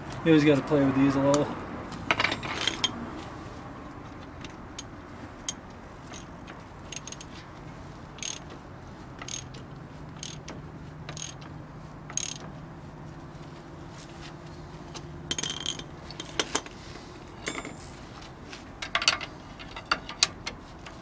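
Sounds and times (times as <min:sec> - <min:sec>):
sharp metallic ratchet clicks: 0:06.9 - 0:07.4, 0:08.2 - 0:08.5, 0:09.2 - 0:09.6, 0:10.2 - 0:10.5, 0:11.1 - 0:11.4, 0:12.1 - 0:12.4, 0:15.3 - 0:16.6.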